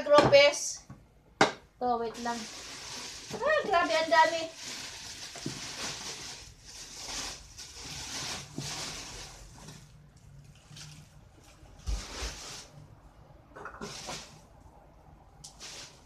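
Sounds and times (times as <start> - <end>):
plastic bags rustling: 2.0 - 13.0, 13.8 - 14.6, 15.4 - 16.0.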